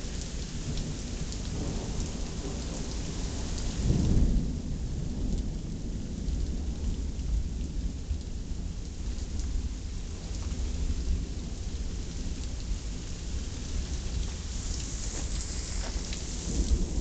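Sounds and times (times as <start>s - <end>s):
low rumble of thunder: 0.0s - 17.0s
steady rain falling: 0.0s - 17.0s.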